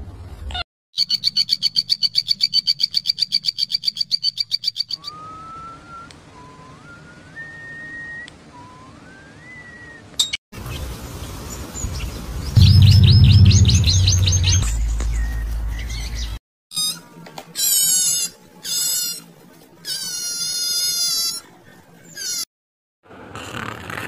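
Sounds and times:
high-pitched pulsed trill: 0:12.6 - 0:15.6
rising whistled notes: 0:12.6 - 0:16.3.

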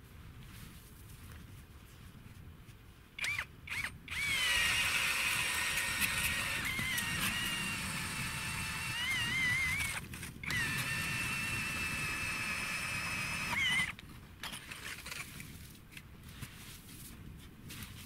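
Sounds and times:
ice auger motor whine: 0:03.2 - 0:14.0
auger grinding ice: 0:03.2 - 0:15.5.

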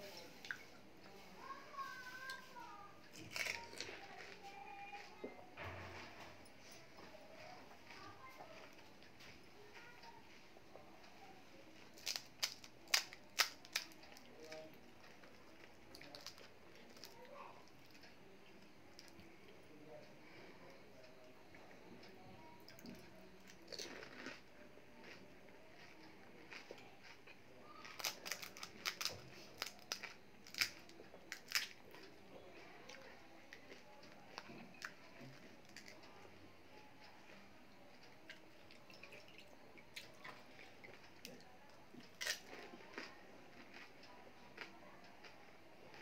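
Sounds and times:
crisp shell cracking: 0:03.1 - 0:04.4, 0:12.0 - 0:14.0, 0:27.9 - 0:31.8
crisp shells crackling: 0:03.1 - 0:04.4.

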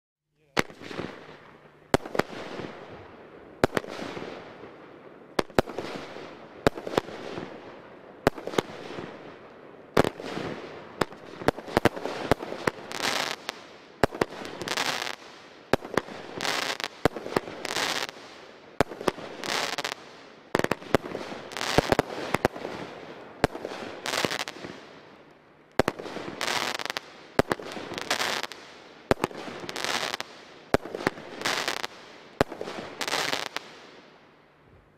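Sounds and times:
crackling firework bursts: 0:00.4 - 0:34.4.

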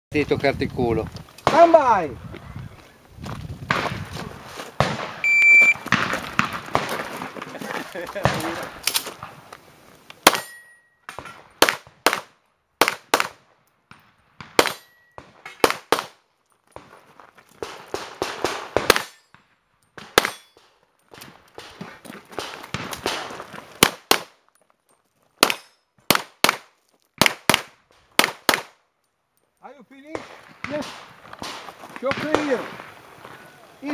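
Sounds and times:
pistol shots: 0:10.2 - 0:16.2, 0:17.6 - 0:19.3, 0:20.0 - 0:20.6, 0:22.4 - 0:24.4, 0:25.4 - 0:28.8, 0:30.1 - 0:32.8
steel targets ringing: 0:10.3 - 0:11.1.

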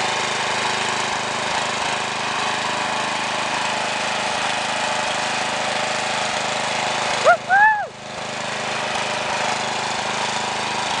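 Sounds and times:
ride-on lawn mower engine: 0:00.0 - 0:11.0.

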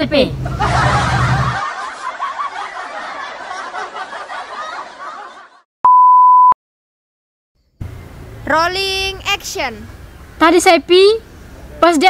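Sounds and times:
people laughing: 0:00.4 - 0:05.6
steady beep tone: 0:05.8 - 0:06.6.

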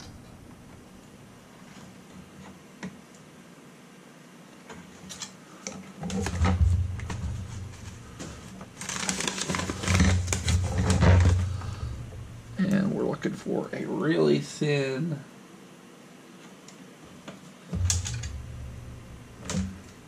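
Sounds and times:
objects being handled: 0:04.6 - 0:12.3.

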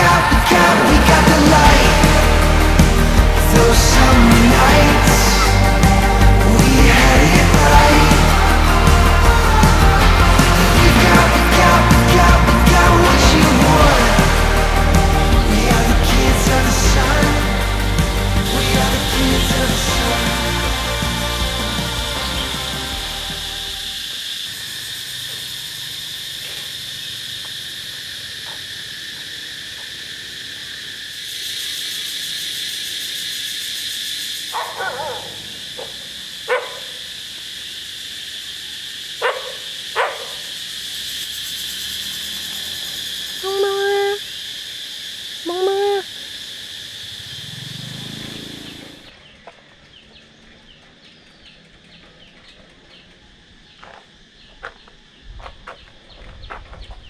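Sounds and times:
steady high drone: 0:00.0 - 0:24.9, 0:34.8 - 0:49.2
dog barking: 0:34.5 - 0:37.0, 0:39.2 - 0:40.4.

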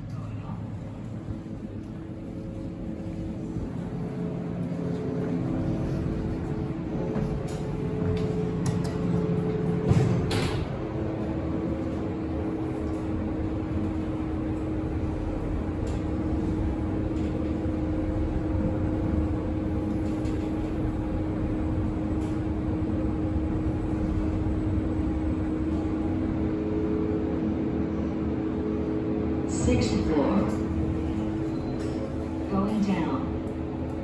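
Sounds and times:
elevator rumble and hum: 0:00.0 - 0:34.0.

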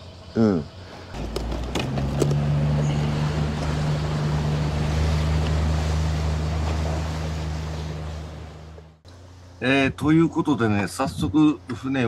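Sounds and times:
boat engine running: 0:01.2 - 0:09.0
water rushing past hull: 0:02.4 - 0:08.9.

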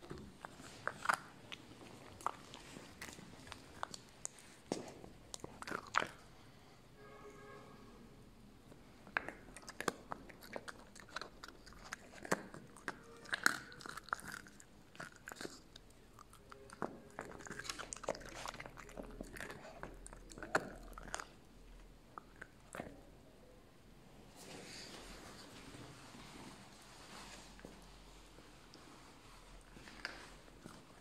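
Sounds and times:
puppy chewing bone: 0:00.0 - 0:06.2, 0:09.0 - 0:23.0.

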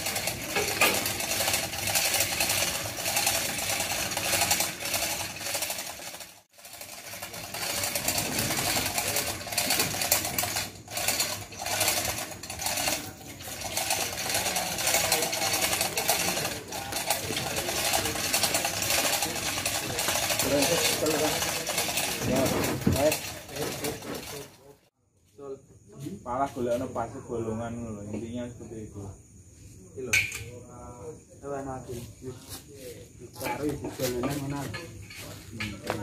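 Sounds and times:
hoist line rattling and clicking: 0:00.0 - 0:24.8.

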